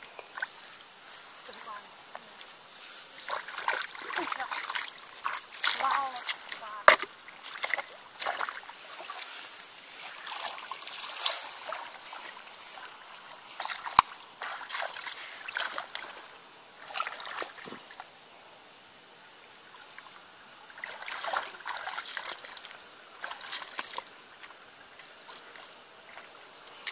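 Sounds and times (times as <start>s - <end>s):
splashing in muddy water: 3.1s - 9.4s, 10.0s - 18.0s, 19.9s - 26.9s.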